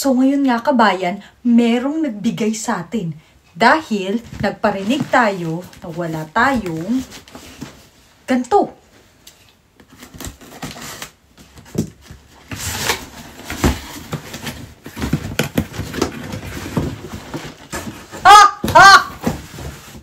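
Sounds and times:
cardboard scraping and rustling: 4.1 - 8.0, 9.8 - 18.2, 19.0 - 20.0
person exclaiming excitedly: 18.2 - 19.3.

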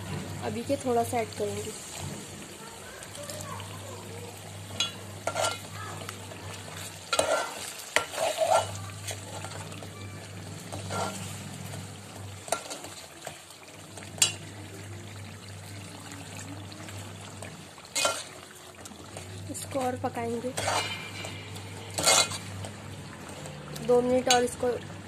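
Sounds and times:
food sizzling and bubbling: 0.0 - 25.0
spoon stirring and scraping pot: 4.7 - 5.7, 6.5 - 9.8, 10.6 - 13.4, 17.4 - 18.4, 19.0 - 24.6.

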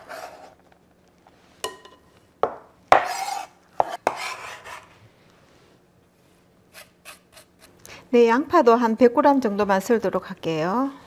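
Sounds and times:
knife scraping wooden cutting board: 3.0 - 4.9.

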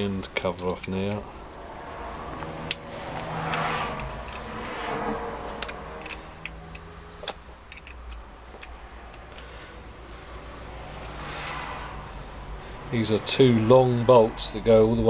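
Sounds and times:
spanner clicking on metal: 0.4 - 1.6, 3.5 - 9.6, 11.4 - 11.7
handling rustle: 5.4 - 11.6.

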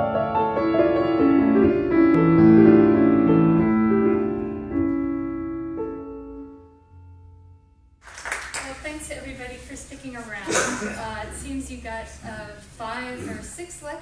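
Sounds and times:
slow piano music: 0.0 - 8.0.

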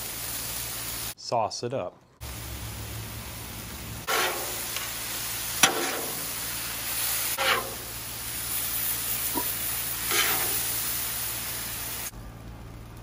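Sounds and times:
food sizzling on a griddle: 0.0 - 1.2, 2.2 - 12.1
metal spatula scraping: 4.1 - 4.7, 5.6 - 6.4, 7.3 - 8.0, 9.3 - 10.8
spatula clacking on griddle: 5.6 - 6.4, 7.4 - 7.9, 9.3 - 10.7.

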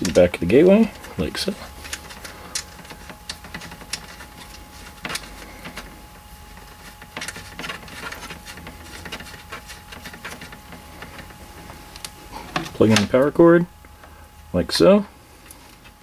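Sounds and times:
connector clicking and scraping: 1.0 - 5.9.

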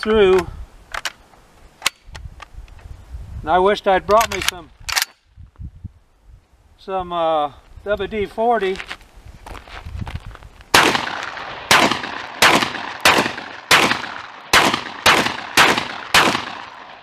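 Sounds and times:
shotgun blasts with echo: 10.7 - 17.0.

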